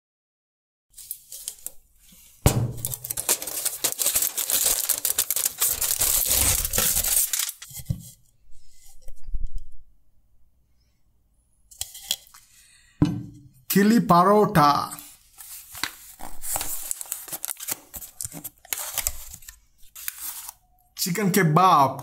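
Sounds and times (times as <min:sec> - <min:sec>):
aluminium foil crinkling and tearing: 0:01.0 - 0:01.8, 0:02.8 - 0:07.7, 0:15.6 - 0:20.6.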